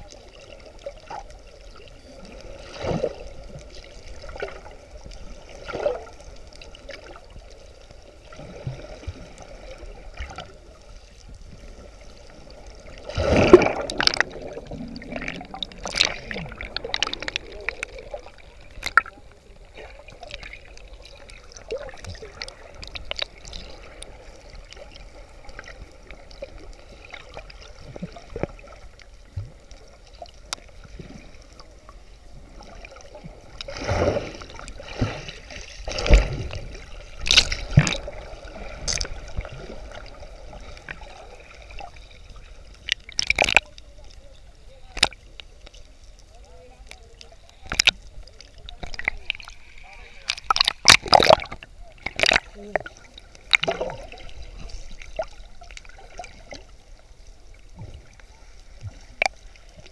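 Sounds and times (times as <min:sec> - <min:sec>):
underwater bubbling and gurgling: 0:00.0 - 0:59.9
small clicks and pops: 0:15.2 - 0:19.2, 0:21.9 - 0:24.1, 0:42.7 - 0:44.2, 0:44.9 - 0:46.2, 0:46.8 - 0:49.6, 0:50.2 - 0:53.9.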